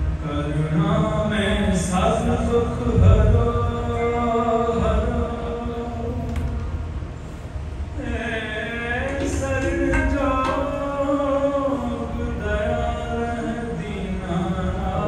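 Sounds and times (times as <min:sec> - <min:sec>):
man singing: 0:00.2 - 0:06.8, 0:08.0 - 0:15.0.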